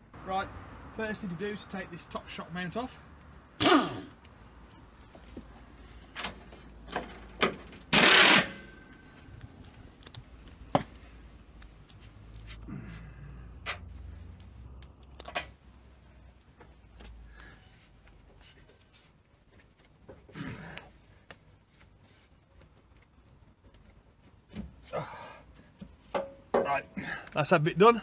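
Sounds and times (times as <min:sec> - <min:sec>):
impact wrench bursts: 0:07.9 - 0:08.7
metal clinks and knocks: 0:26.1 - 0:26.8.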